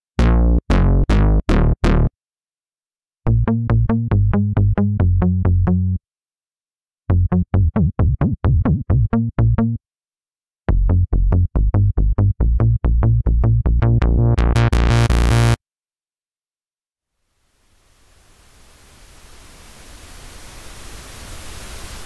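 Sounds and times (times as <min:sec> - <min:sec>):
punchy synthesizer bass notes: 0:00.2 - 0:02.1, 0:10.7 - 0:15.6.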